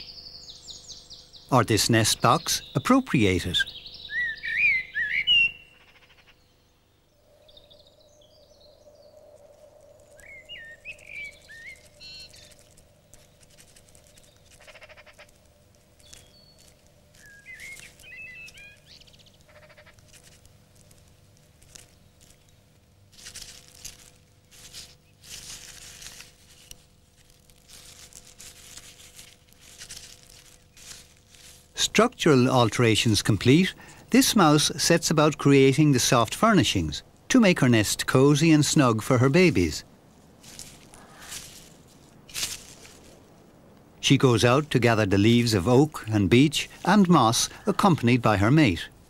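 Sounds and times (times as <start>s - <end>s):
faint bird chirps: 0.0s - 15.4s, 16.0s - 20.0s
mouse rustling in leaves: 7.3s - 49.0s.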